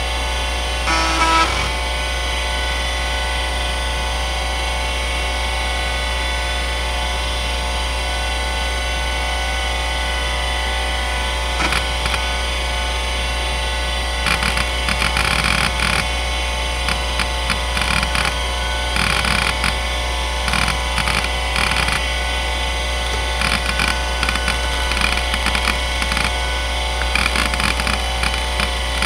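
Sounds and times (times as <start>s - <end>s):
hard drive buzzing burst: 0.0s - 3.6s, 10.0s - 29.0s
hard drive spinning whine: 0.0s - 29.0s
hard drive head clicks: 19.0s - 19.8s, 20.5s - 22.0s, 23.2s - 26.4s.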